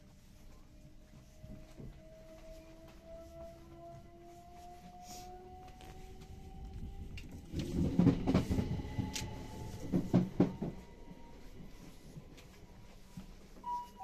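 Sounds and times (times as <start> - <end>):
train rumble: 0.0 - 14.0
chime tone: 13.6 - 14.0.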